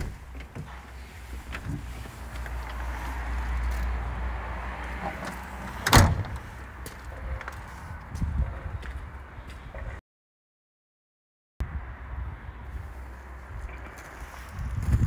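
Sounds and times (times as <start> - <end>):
truck door slamming: 5.6 - 6.5.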